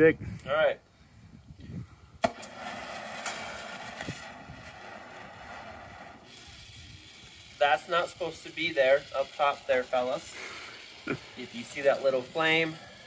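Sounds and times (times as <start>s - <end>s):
torch lighting with a pop: 2.2s - 4.3s
torch flame hissing: 2.4s - 13.0s.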